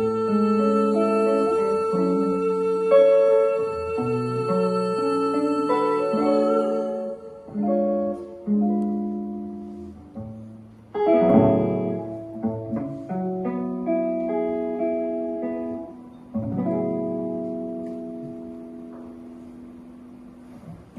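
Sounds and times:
guitar and piano jazz ballad: 0:00.0 - 0:20.9.

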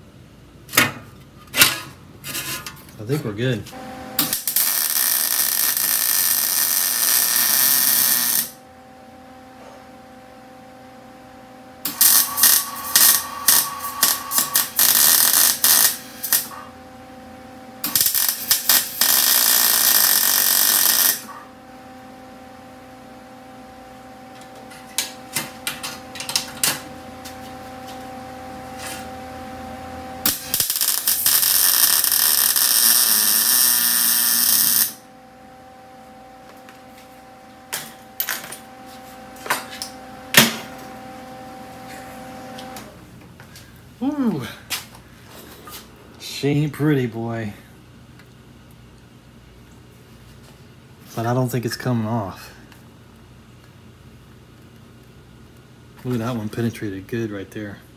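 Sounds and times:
faint steady hum: 0:00.0 - 0:57.9
welder arc crackling and sizzling: 0:03.8 - 0:08.6, 0:11.8 - 0:16.7, 0:17.8 - 0:21.4, 0:30.2 - 0:35.1.

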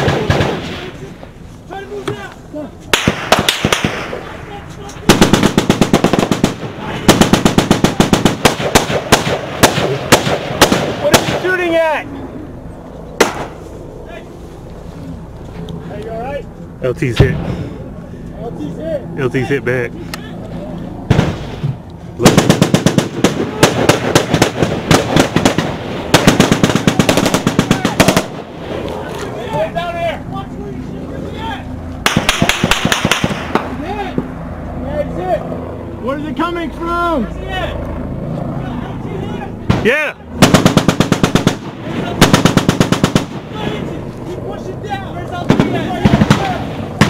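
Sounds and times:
automatic gunfire: 0:00.0 - 0:00.8, 0:03.0 - 0:04.2, 0:05.1 - 0:11.5, 0:22.2 - 0:28.5, 0:32.0 - 0:33.7, 0:39.7 - 0:43.5, 0:45.5 - 0:47.0.

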